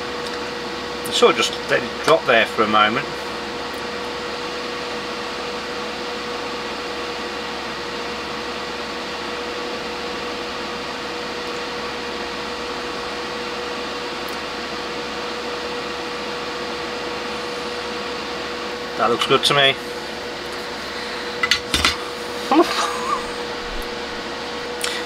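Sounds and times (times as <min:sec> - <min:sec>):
hot air gun hissing and whining: 0:15.9 - 0:25.0.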